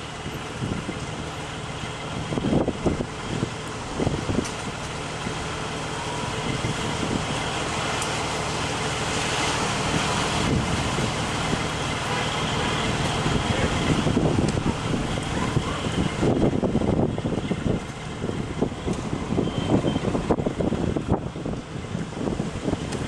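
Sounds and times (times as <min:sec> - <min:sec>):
truck engine idling: 0:00.0 - 0:23.0
wind buffeting microphone: 0:00.2 - 0:23.0
strong wind rushing: 0:02.1 - 0:05.4, 0:06.1 - 0:07.6, 0:09.7 - 0:11.8, 0:12.8 - 0:23.0.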